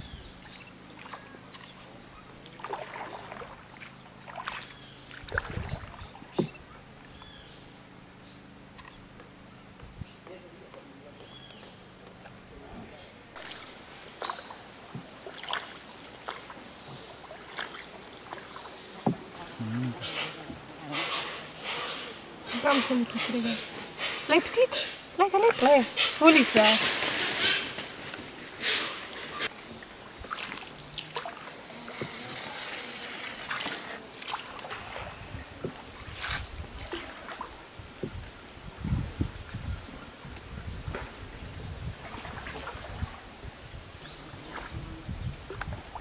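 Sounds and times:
jungle insects droning: 0.0 - 12.6, 13.3 - 46.0
paddle strokes splashing water: 0.4 - 7.2, 13.4 - 24.4, 25.2 - 38.3, 41.9 - 43.3
water drips and splashes: 2.4 - 6.6, 13.4 - 19.2, 29.8 - 32.3.

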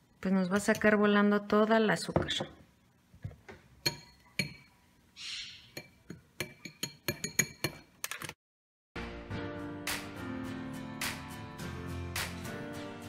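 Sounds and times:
mixer beaters clinking on glass bowl: 5.8 - 7.8.

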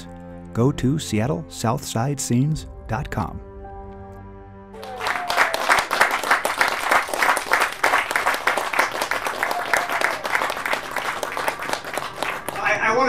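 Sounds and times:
people applauding: 4.8 - 13.0.

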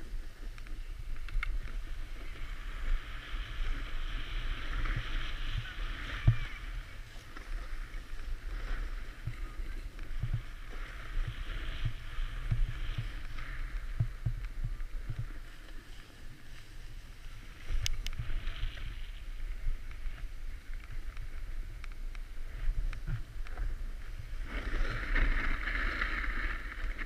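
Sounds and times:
skis scraping over snow: 0.0 - 27.0
wind buffeting microphone: 0.0 - 27.0.

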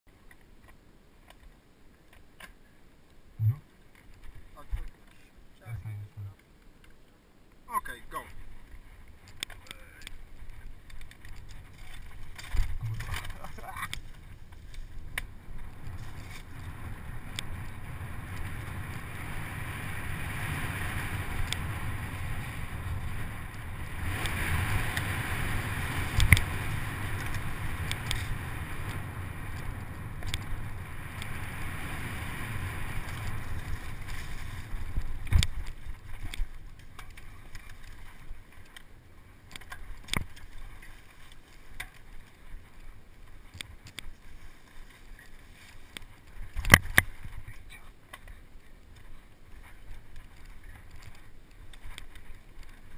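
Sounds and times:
wind on microphone: 3.4 - 3.6, 10.2 - 38.4
bike rattling over rough ground: 7.9 - 52.9.

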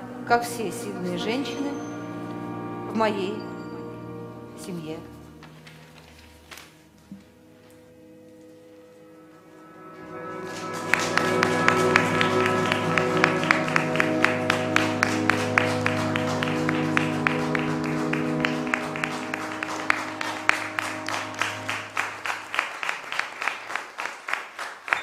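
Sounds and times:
held chords over low drone: 0.0 - 6.6, 7.2 - 22.7
audience applause: 10.0 - 25.0.

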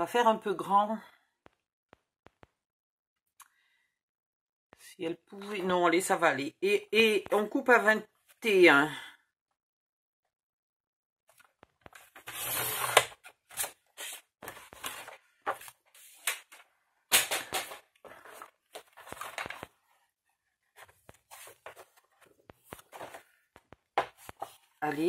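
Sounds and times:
paper rustles and taps: 13.4 - 19.8, 20.8 - 24.7.

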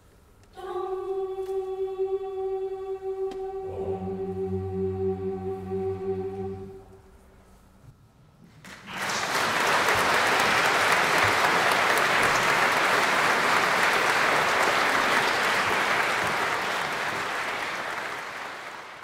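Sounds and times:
audience applauding: 8.6 - 19.0.

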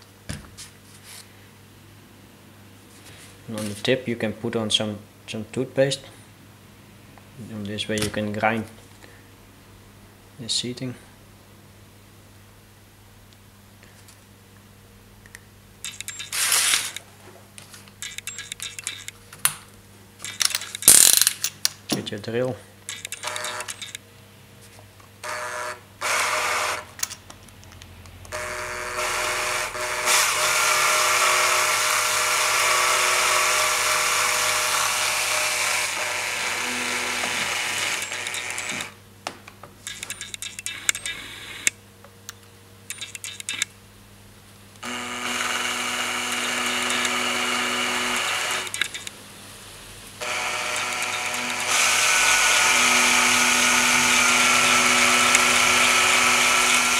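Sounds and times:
clicks: 15.2 - 17.0, 22.9 - 24.0, 39.5 - 43.7, 48.6 - 49.2
power drill motor hissing: 16.0 - 17.0, 28.4 - 39.0, 44.8 - 49.1, 50.2 - 56.9.

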